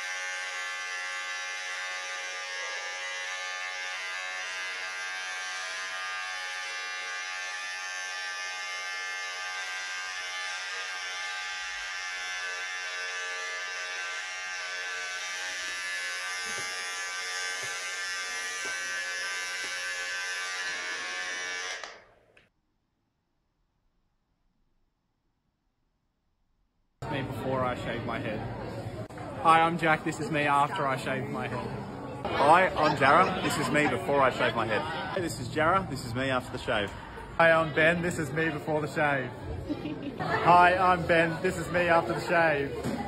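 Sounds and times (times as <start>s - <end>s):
electric hair clippers buzzing: 0.0s - 22.3s.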